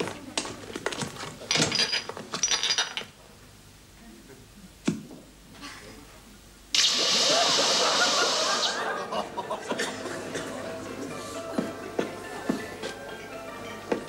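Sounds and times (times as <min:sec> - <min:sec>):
gushing water splashing: 0:06.8 - 0:08.8.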